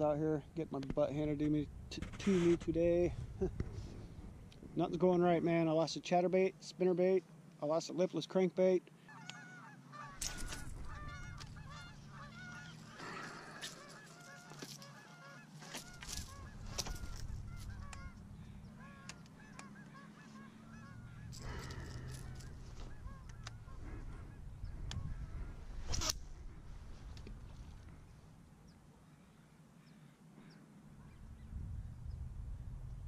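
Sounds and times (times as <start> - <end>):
flock of geese honking: 9.0 - 28.0
low rumble: 31.0 - 33.0.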